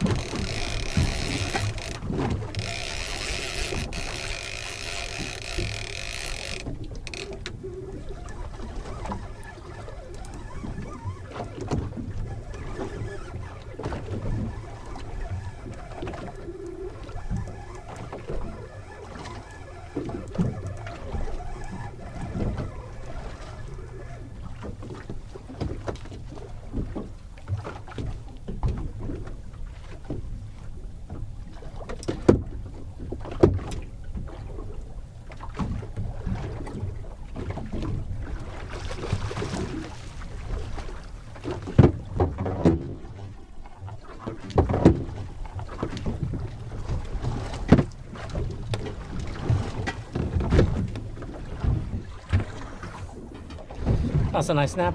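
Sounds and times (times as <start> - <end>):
small knocks and clicks: 0.0 - 7.6
water slapping against boat hull: 0.0 - 54.9.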